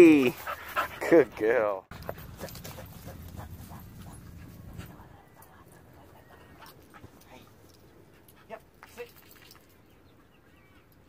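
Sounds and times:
dog panting: 0.1s - 8.8s.

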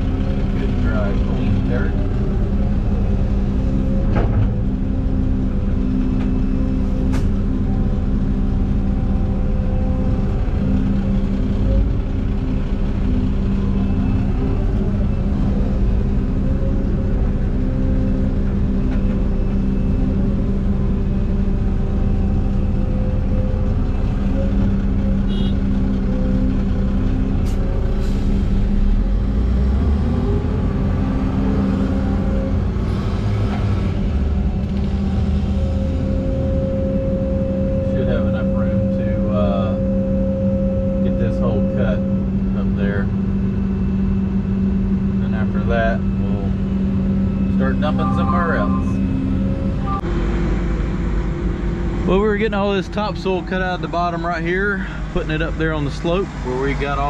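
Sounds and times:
diesel machinery engine drone: 0.0s - 57.0s.

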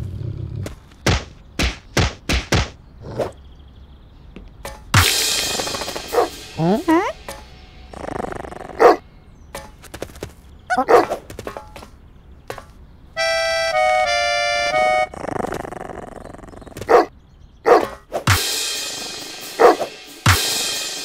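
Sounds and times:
noisy crash effect: 4.9s - 7.9s
cartoon dog barking: 6.1s - 7.2s, 8.2s - 9.0s, 10.7s - 11.2s, 16.8s - 18.0s, 19.6s - 20.0s.

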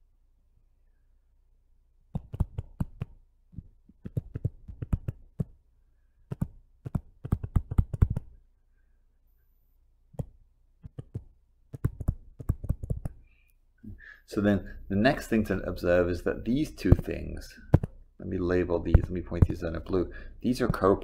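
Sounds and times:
stylus tapping on tablet screen: 2.1s - 5.6s, 6.3s - 8.4s, 10.2s - 13.2s, 16.8s - 18.0s, 18.9s - 19.7s.

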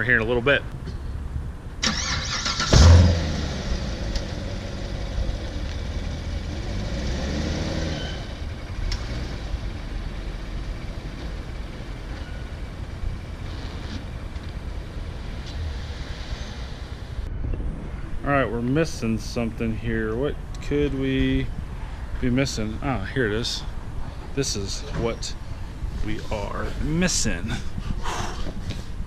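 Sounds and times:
car engine idling: 1.8s - 17.3s
car engine starting and revving: 1.8s - 17.3s.

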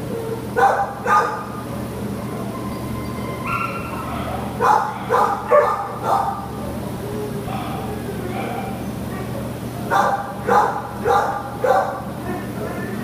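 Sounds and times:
dog yipping: 0.1s - 1.6s, 2.2s - 6.4s, 9.9s - 12.0s.

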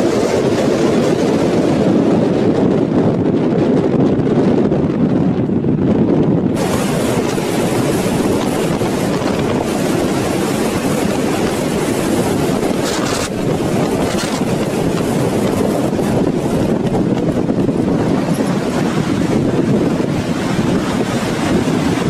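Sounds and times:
strong wind on microphone: 0.0s - 22.0s.

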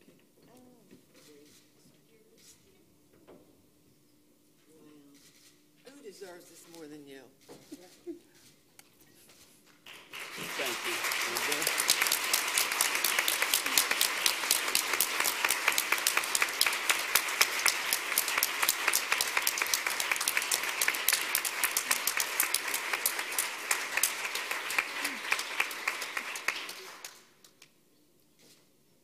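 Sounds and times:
audience applauding: 9.8s - 27.4s.

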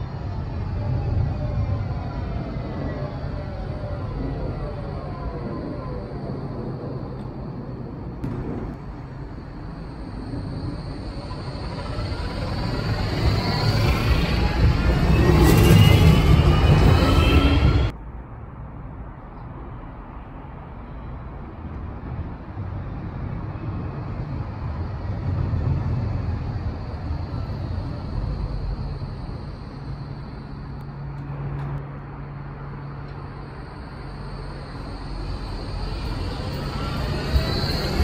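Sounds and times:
tram rumbling on track: 0.0s - 38.0s.

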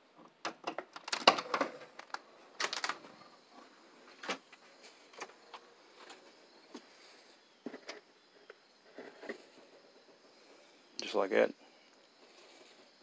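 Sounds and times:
door opening and shutting: 0.5s - 3.2s.

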